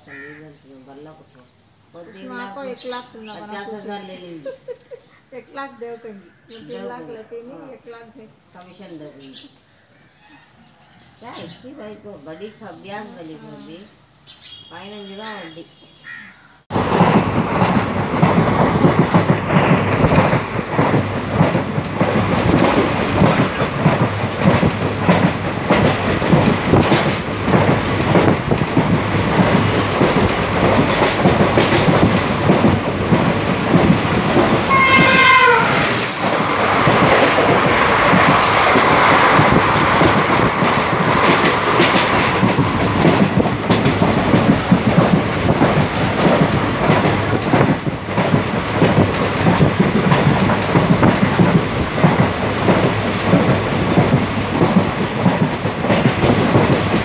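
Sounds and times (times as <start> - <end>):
train rumble: 16.7 - 57.0
wheels clacking over rail joints: 16.7 - 57.0
rushing air: 35.7 - 57.0.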